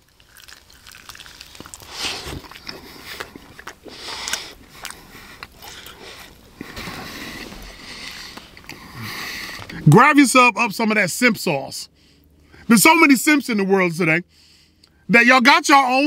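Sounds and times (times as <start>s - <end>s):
wet chewing and biting: 0.0s - 9.8s
sniffs and nose breaths: 1.8s - 9.8s.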